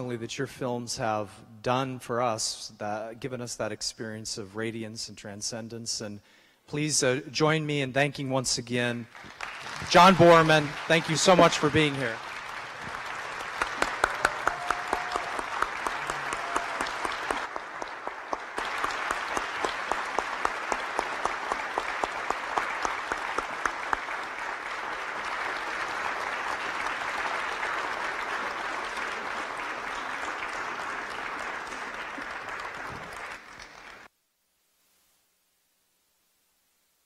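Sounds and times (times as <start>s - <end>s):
audience applauding: 9.1s - 34.1s.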